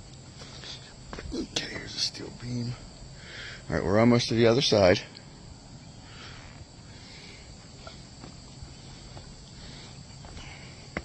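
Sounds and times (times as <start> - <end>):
insects chirring: 0.0 - 11.0
footsteps on wooden ties: 7.6 - 11.0.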